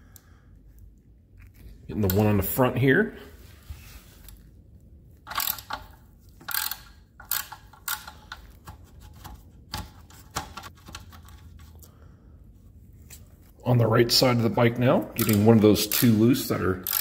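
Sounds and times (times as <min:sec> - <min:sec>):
hand tool clicking and scraping: 0:05.3 - 0:10.7, 0:15.2 - 0:16.2.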